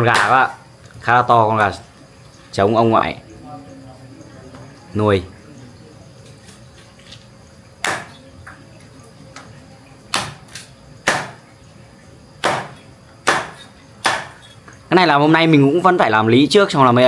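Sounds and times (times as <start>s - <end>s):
cleaver chopping on a board: 0.1s - 0.6s, 7.8s - 8.2s, 10.1s - 11.4s, 12.4s - 14.4s.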